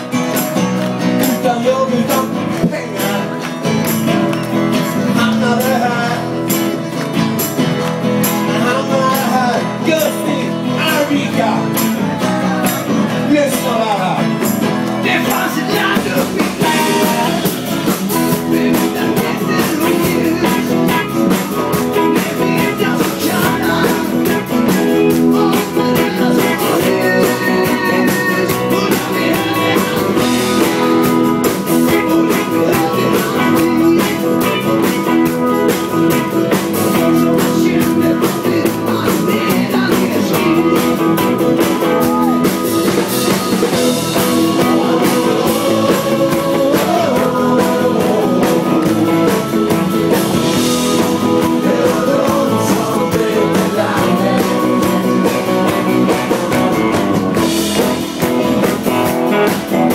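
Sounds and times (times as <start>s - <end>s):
acoustic guitars strummed: 0.0s - 59.9s
people singing into microphones: 14.8s - 58.4s.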